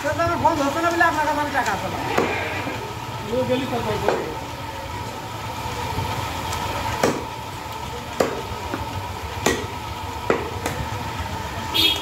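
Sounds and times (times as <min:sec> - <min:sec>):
cleaver chopping meat on wooden block: 0:07.0 - 0:07.3, 0:08.2 - 0:10.8.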